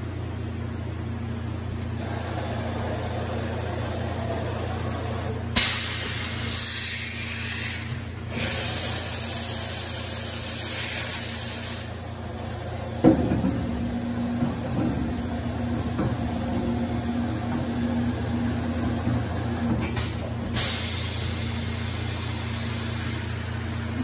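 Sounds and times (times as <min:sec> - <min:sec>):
machine hissing: 0:03.5 - 0:12.2.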